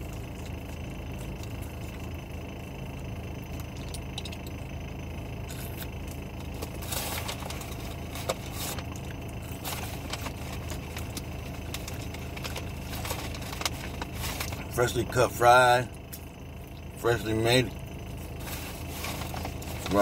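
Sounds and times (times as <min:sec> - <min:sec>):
car idling: 0:00.0 - 0:20.0
food packet crinkling: 0:06.5 - 0:14.7, 0:18.3 - 0:20.0.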